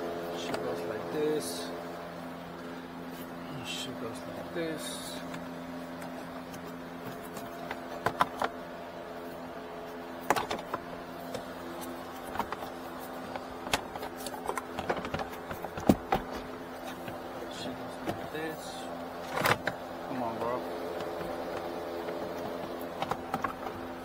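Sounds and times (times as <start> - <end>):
steady hum: 0.0 - 24.0
plastic panels clicking and knocking: 7.1 - 8.5, 10.2 - 11.4, 13.3 - 17.2.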